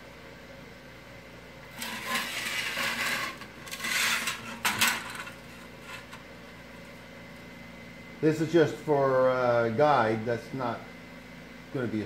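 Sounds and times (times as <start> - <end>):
sheet metal scraping on workbench: 1.7 - 6.3.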